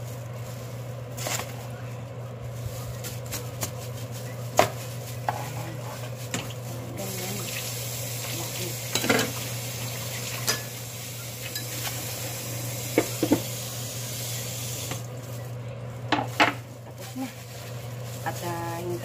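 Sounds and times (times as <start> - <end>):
dishes and utensils clinking: 8.9 - 9.4, 10.4 - 10.8, 11.4 - 12.0.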